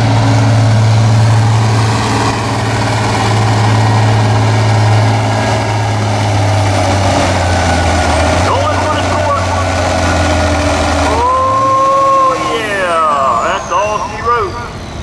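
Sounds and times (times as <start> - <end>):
tractor diesel engine idling: 0.0 - 15.0.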